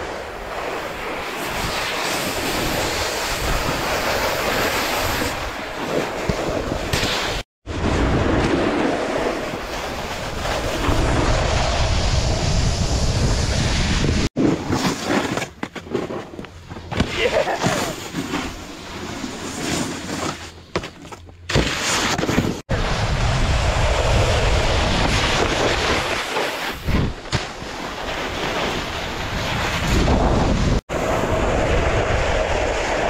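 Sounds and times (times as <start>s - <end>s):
snowboard scraping over snow: 0.0s - 33.0s
wind on camera microphone: 7.7s - 14.4s, 22.7s - 27.7s, 28.8s - 33.0s.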